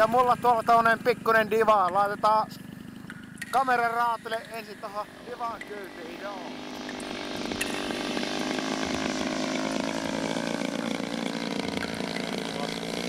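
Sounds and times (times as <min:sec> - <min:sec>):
model plane engine running: 0:03.6 - 0:13.0.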